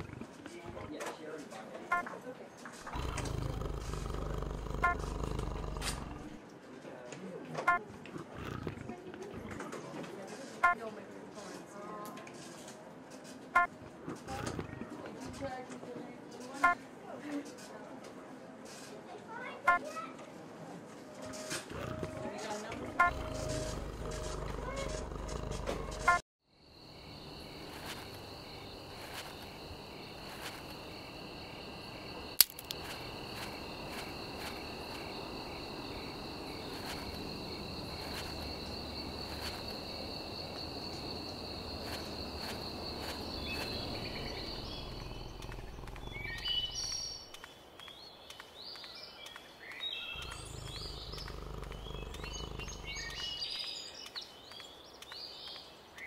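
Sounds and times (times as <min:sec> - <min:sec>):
birds chirping: 0:02.8 - 0:06.4, 0:21.7 - 0:56.0
insects trilling: 0:02.9 - 0:06.4, 0:21.7 - 0:47.6, 0:50.0 - 0:53.9
low rumble: 0:43.6 - 0:47.0.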